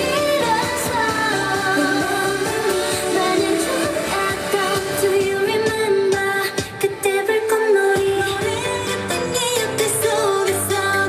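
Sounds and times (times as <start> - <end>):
pop backing track: 0.0 - 11.0
women singing: 0.0 - 11.0.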